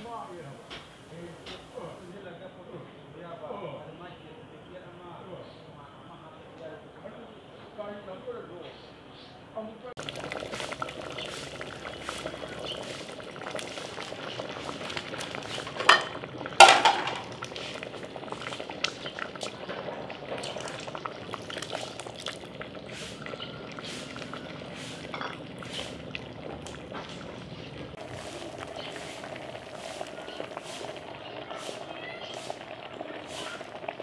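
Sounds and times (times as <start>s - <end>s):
stew boiling and bubbling: 10.0s - 34.0s.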